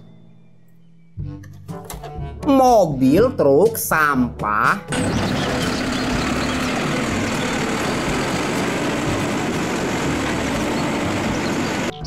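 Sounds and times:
garbage truck engine running: 4.9 - 12.0
hydraulic arm tipping bin: 4.9 - 12.0.

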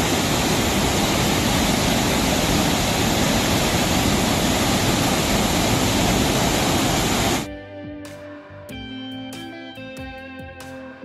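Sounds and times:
waterfall splashing into pool: 0.0 - 7.5.

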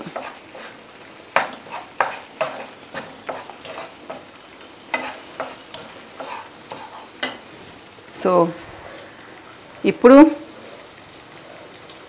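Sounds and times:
spatula scraping pan: 0.0 - 7.6
frying sizzle: 0.0 - 12.0.

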